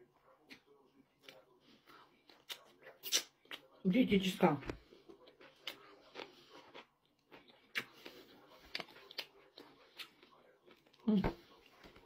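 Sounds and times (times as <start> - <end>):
meat tearing wet snaps: 2.3 - 3.8
person chewing with mouth clicks: 5.1 - 11.0.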